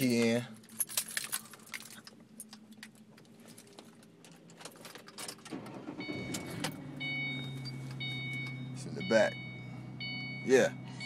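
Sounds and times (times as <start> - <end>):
car keys jangling and clicking: 0.0 - 8.7
low steady hum: 0.0 - 11.0
car warning chime: 5.9 - 11.0.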